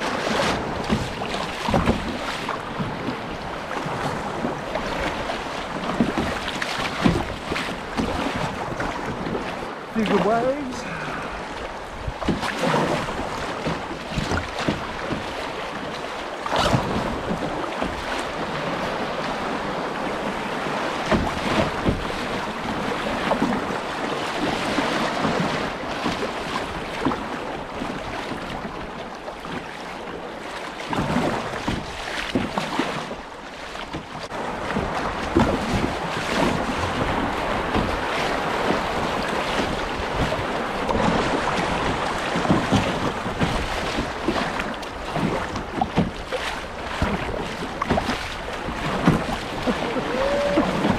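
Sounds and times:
river water rushing and splashing: 0.0 - 50.9
wind on microphone: 34.3 - 50.9.

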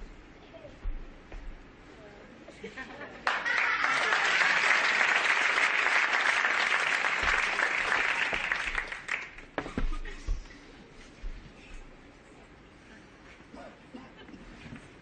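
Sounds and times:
audience applauding: 3.2 - 9.6.

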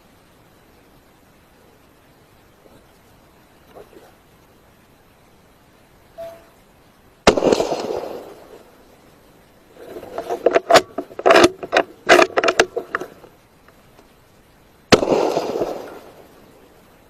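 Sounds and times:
rifle shot echoing: 7.2 - 8.7, 14.9 - 16.3
sharp clicks and knocks: 10.0 - 14.1.

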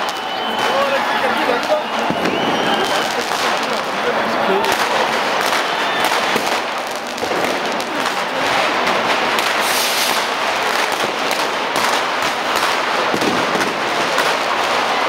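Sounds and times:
firecrackers banging: 0.0 - 15.0
firework hissing burst: 9.0 - 13.8.

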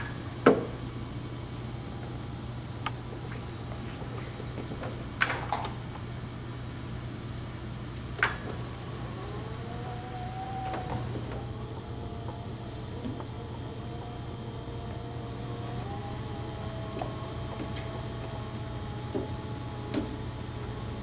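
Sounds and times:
low hum: 5.9 - 21.0
wheelchair motors whining: 8.0 - 21.0.

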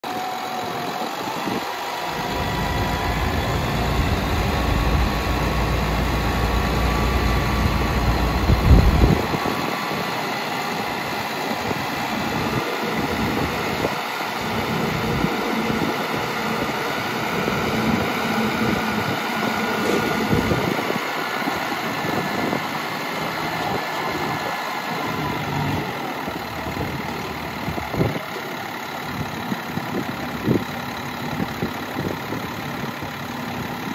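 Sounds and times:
hydraulic hoist raising dump bed: 0.1 - 29.0
diesel truck engine idling: 0.1 - 33.9.

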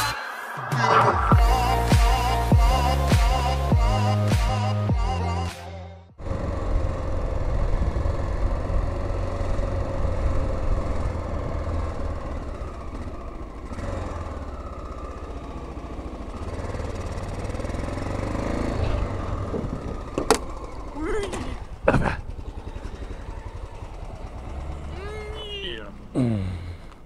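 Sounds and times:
intro music: 0.0 - 6.1
motorcycle engine rumbling: 6.1 - 27.0.

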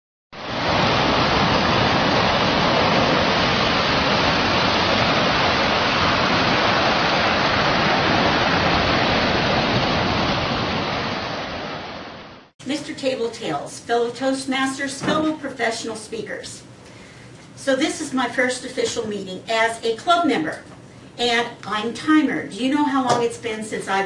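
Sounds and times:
steady rushing noise: 0.4 - 12.5.

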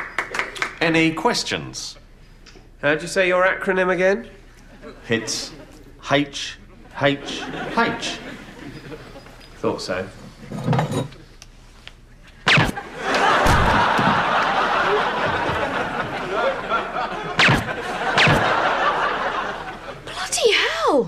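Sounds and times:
audience laughter: 4.7 - 6.0, 6.6 - 9.5, 12.6 - 20.2
gunshot bang: 12.5 - 12.8, 13.4 - 14.2, 17.4 - 18.6.

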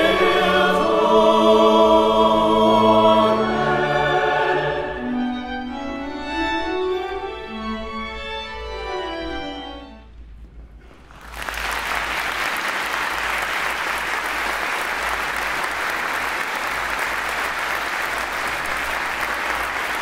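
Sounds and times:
string ensemble playing: 0.0 - 10.3
audience applauding: 10.9 - 20.0.

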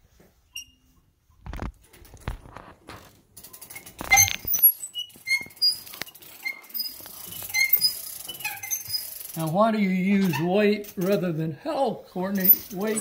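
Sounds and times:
short high squeaks: 0.5 - 1.0, 3.5 - 11.1.

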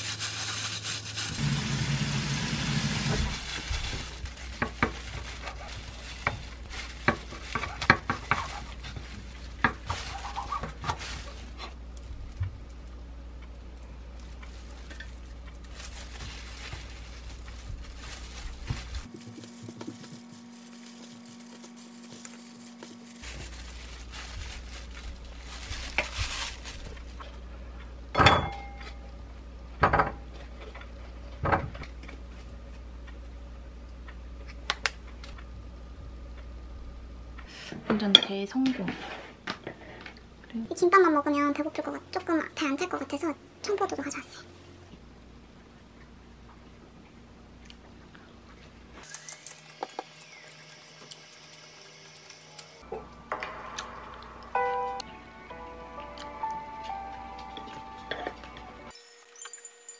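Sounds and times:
dishes clinking: 28.2 - 29.0.

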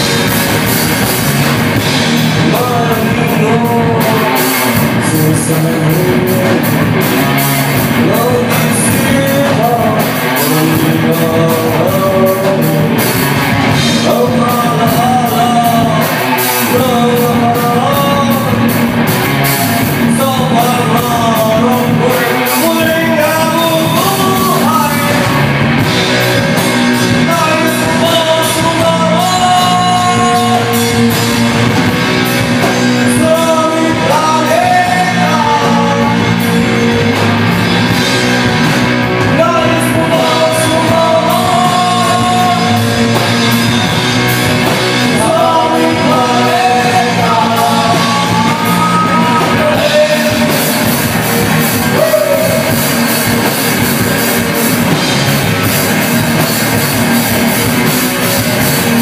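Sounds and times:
bass guitar: 0.0 - 59.0
drums: 0.0 - 59.0
electric guitar: 0.0 - 59.0
male singer: 2.1 - 18.8, 19.6 - 25.5, 26.3 - 31.3, 32.3 - 37.2, 39.2 - 44.0, 44.6 - 52.8.

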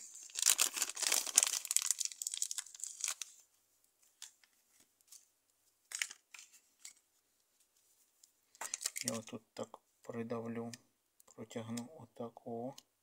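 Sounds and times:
plastic bag crinkling: 0.1 - 3.4, 5.9 - 6.9, 8.6 - 9.2.

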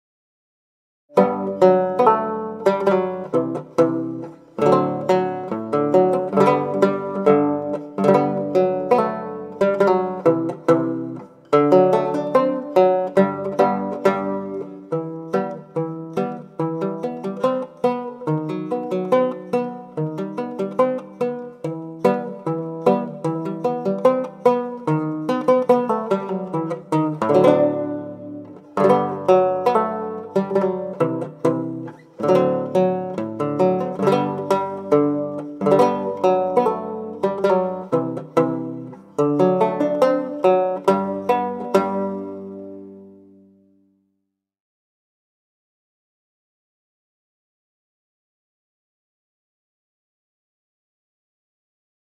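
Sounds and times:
plucked string instrument melody: 1.1 - 44.0.

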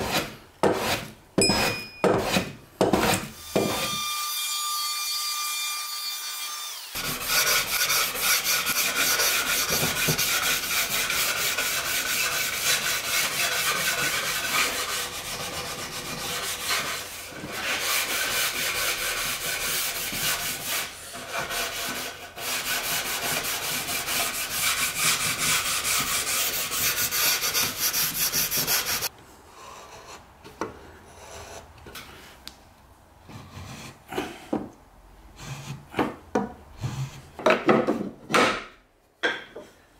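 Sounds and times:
tool rasping on wood: 0.0 - 3.9, 6.9 - 29.1.

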